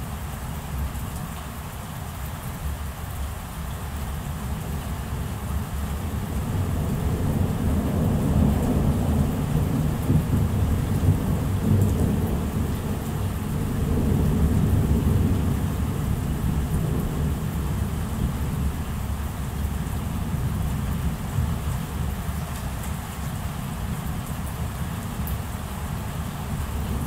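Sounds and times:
steady rain: 0.0 - 27.0
rolling thunder: 6.3 - 18.8.

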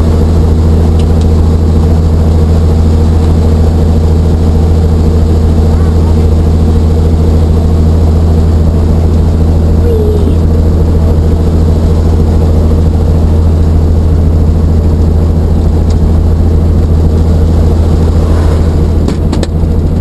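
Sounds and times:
helicopter cabin drone: 0.0 - 20.0
steady tones: 9.8 - 20.0.

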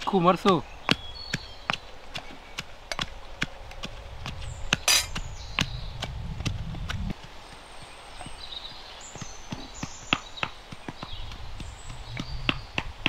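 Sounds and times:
metal pestles pounding in mortars: 4.8 - 5.2.

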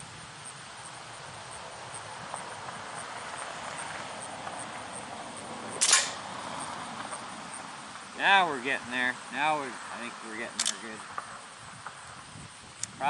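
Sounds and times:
wind hiss: 0.0 - 13.0
air rifle shot: 5.8 - 6.3.

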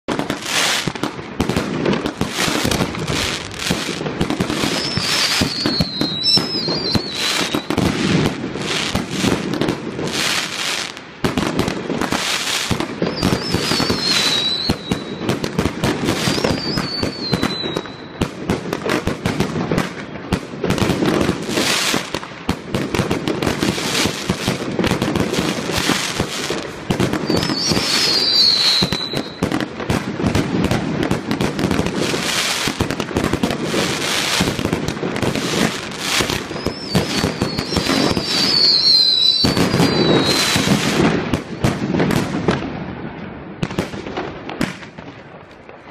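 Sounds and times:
fireworks bursts and crackling: 0.0 - 45.9
falling firework whistle: 0.1 - 10.9, 12.0 - 18.3, 27.0 - 29.7, 33.8 - 41.2.

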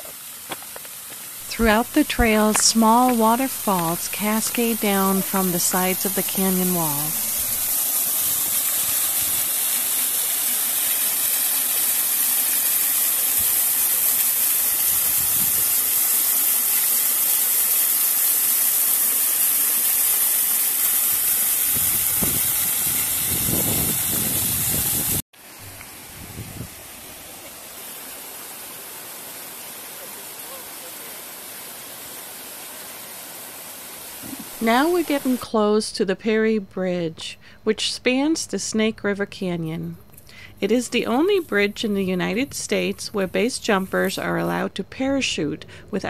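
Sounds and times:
small waterfall splashing: 0.0 - 35.3.

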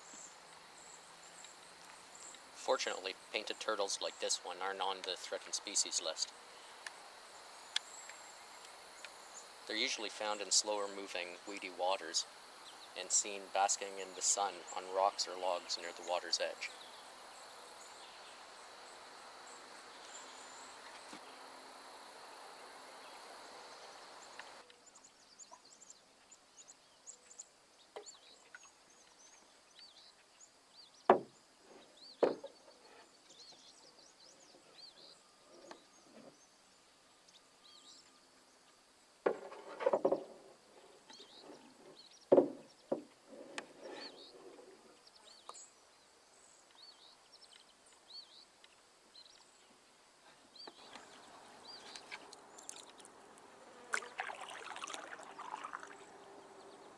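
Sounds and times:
faint birds chirping: 0.0 - 56.9
insect hiss: 0.0 - 56.9
paddle knocking against canoe: 31.1 - 31.4, 32.2 - 32.6, 39.2 - 40.4, 42.3 - 43.1
paddle splashing water: 50.7 - 56.9.

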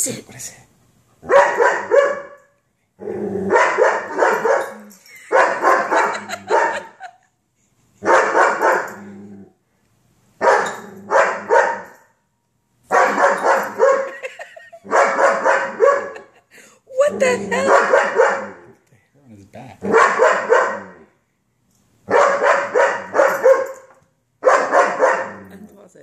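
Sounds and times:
dog barking: 1.2 - 2.4, 3.5 - 7.1, 8.0 - 9.0, 10.4 - 12.0, 12.9 - 14.3, 14.9 - 16.3, 17.2 - 18.6, 19.8 - 21.0, 22.1 - 25.6.

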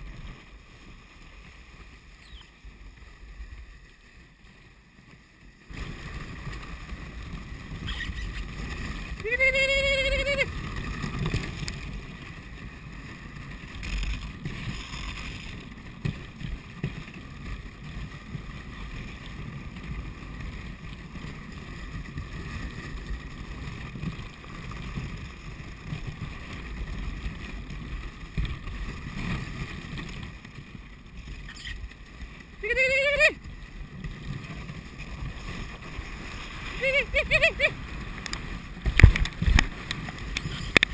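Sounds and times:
sled runners hissing on snow: 0.1 - 11.2, 31.3 - 38.8
wind buffeting microphone: 5.7 - 40.9
sled knocks and bumps: 10.5 - 31.3, 37.7 - 40.9.

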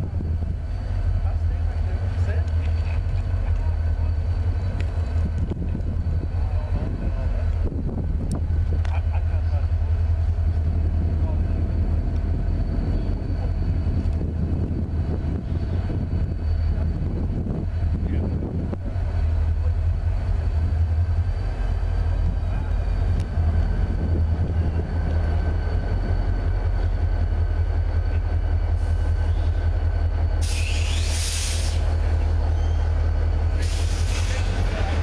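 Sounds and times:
diesel locomotive engines droning: 0.0 - 35.0
loud high hiss: 30.4 - 32.0, 33.4 - 34.8.

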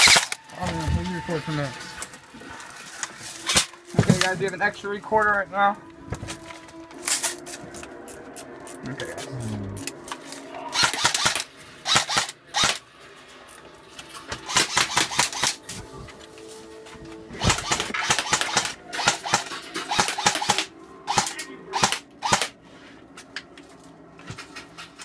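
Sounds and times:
airsoft guns firing bursts: 10.8 - 12.8, 14.5 - 15.6, 17.4 - 22.6.

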